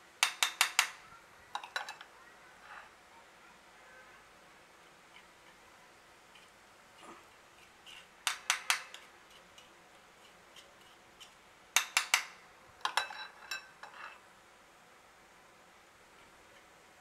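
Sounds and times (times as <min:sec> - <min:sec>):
metal ladle tapping: 0:11.2 - 0:14.0.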